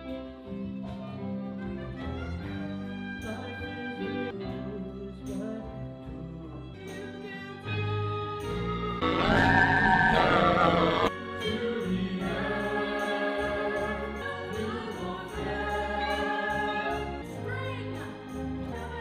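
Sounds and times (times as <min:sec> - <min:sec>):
chorus singing with orchestra: 0:08.7 - 0:19.0.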